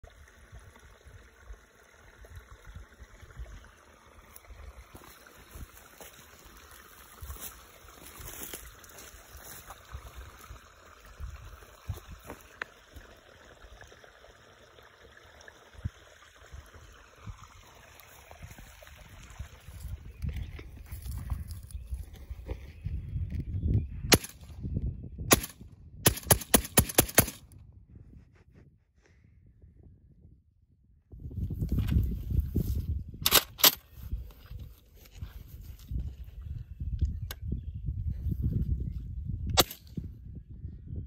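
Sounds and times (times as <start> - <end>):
wind rumbling on microphone: 0.0 - 13.1, 15.7 - 41.0
faint creek running: 0.0 - 23.0, 31.5 - 37.0.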